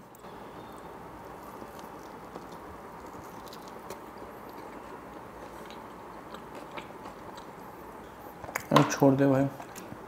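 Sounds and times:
man chewing food: 0.0 - 8.7
steady background hiss: 0.0 - 10.0.

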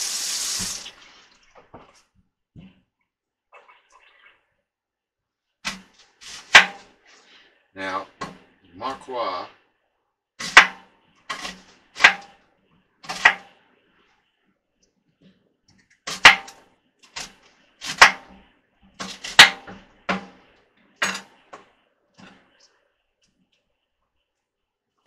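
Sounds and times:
knife chopping on wooden board: 10.4 - 12.3, 13.1 - 13.5, 19.0 - 20.4.

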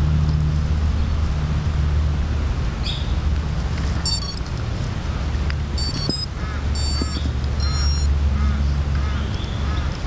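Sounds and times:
high electronic beeps: 4.0 - 4.4, 5.8 - 8.1.

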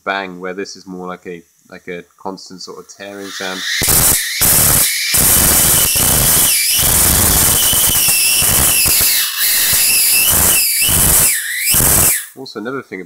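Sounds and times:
high-voltage arc crackling: 3.1 - 12.4.

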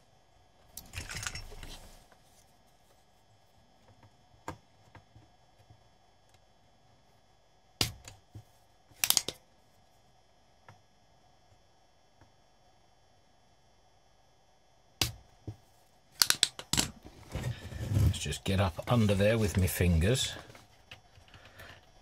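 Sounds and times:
desoldering pump snapping: 9.0 - 9.4.

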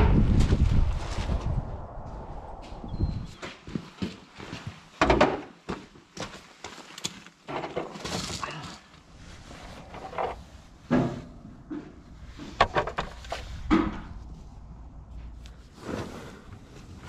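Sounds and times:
low rumble: 0.0 - 3.4, 9.1 - 15.9
tools knocking and scraping: 9.9 - 14.2.

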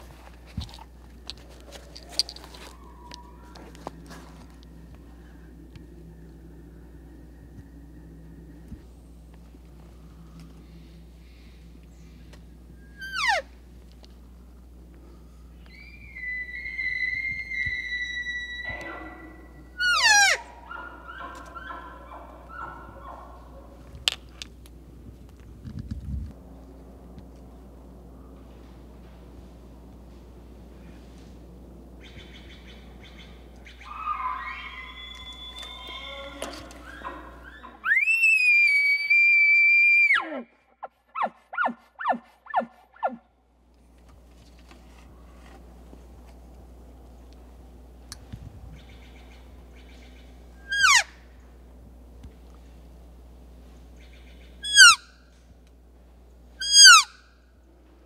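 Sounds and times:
elk bugling whistle: 12.8 - 13.5, 15.7 - 21.9, 33.8 - 40.4, 50.6 - 51.1, 54.6 - 55.1, 56.6 - 57.2.

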